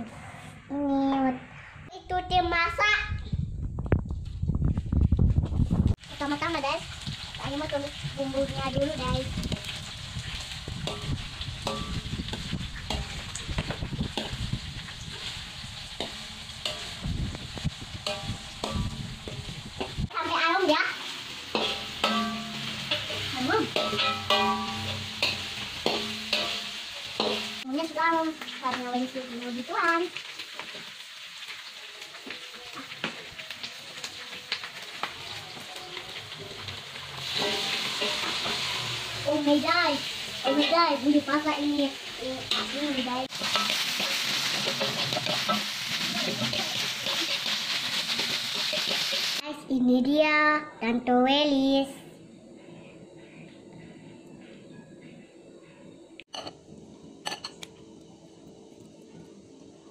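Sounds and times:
spices sizzling in a wok: 4.2 - 55.0, 56.2 - 59.9
wooden spatula scraping a wok: 36.3 - 39.5, 42.5 - 49.4.

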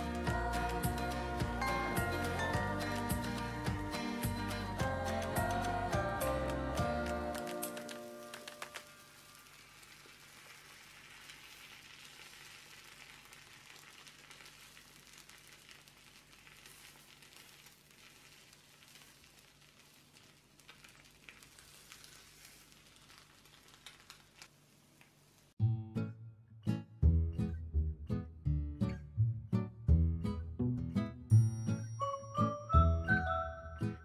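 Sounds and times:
omelette sizzling in a pan: 0.0 - 25.6
small crackles and ticks: 7.0 - 25.6.

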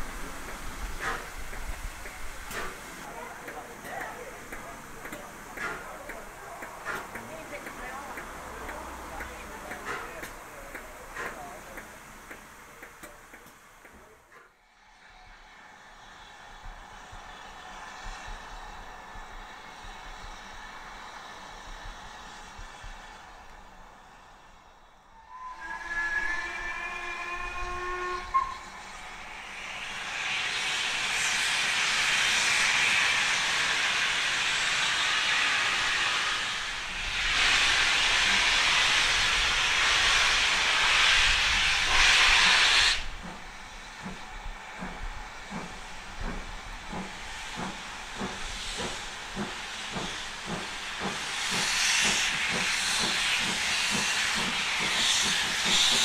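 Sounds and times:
locomotive exhaust beats: 0.0 - 14.4
loud hiss of steam: 0.0 - 56.0
steam locomotive whistle: 25.1 - 29.0.

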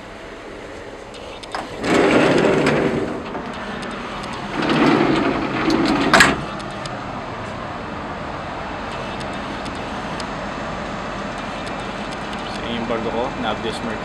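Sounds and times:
heavy steel door opening: 1.4 - 6.9.

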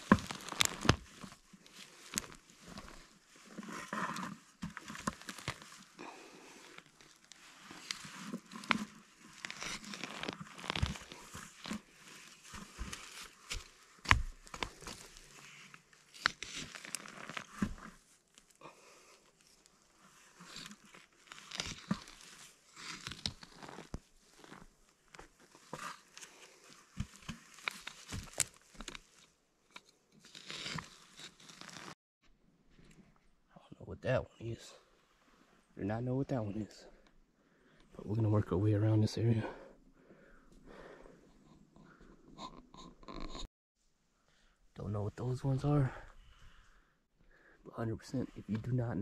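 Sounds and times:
footsteps on branches: 0.0 - 5.9, 6.8 - 17.9
pine needles and twigs crunching: 0.0 - 32.0.

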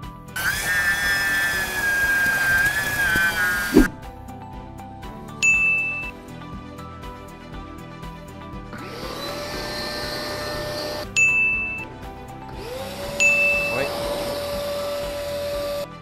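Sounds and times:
vacuum motor whining: 0.4 - 4.1, 8.8 - 11.9, 12.5 - 15.9
bright ding chime: 5.4 - 6.1, 11.2 - 11.8, 13.2 - 13.8.

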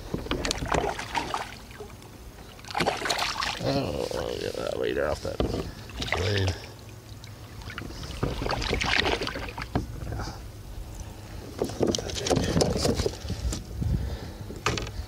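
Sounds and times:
knocks and rattles against kayak: 0.0 - 1.5, 5.1 - 6.1, 7.6 - 10.4, 11.4 - 13.7, 14.5 - 15.0
fish splashing: 0.3 - 3.8, 5.6 - 9.8.

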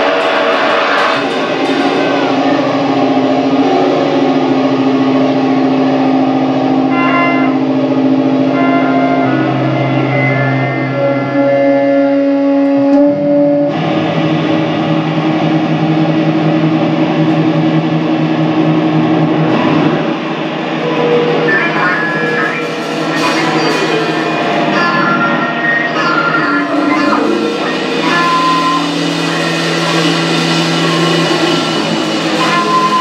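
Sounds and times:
electric guitar chords: 0.0 - 33.0
live rock band playing: 22.2 - 33.0.

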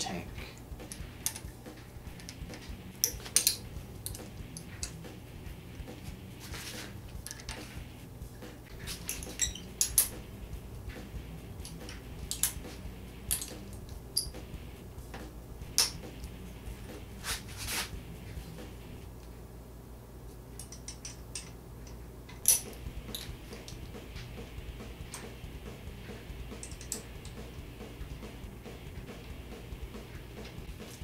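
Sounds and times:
steady low hum: 0.0 - 31.0
metal clamps clinking: 0.8 - 1.5, 2.2 - 5.0, 7.2 - 7.7, 8.7 - 10.2, 13.3 - 14.4, 20.6 - 23.8, 26.6 - 27.4
metal scraping: 0.8 - 10.2, 16.0 - 18.7.

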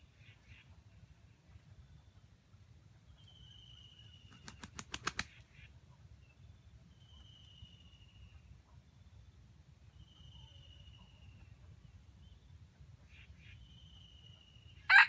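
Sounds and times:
bird wings flapping: 4.3 - 5.4.

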